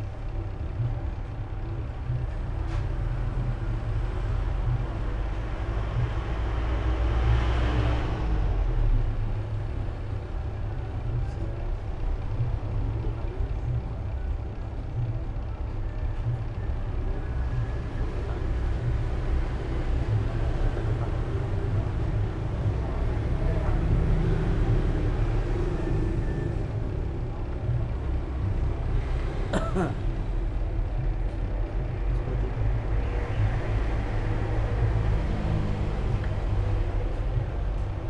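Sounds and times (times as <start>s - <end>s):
low background rumble: 0.0s - 38.0s.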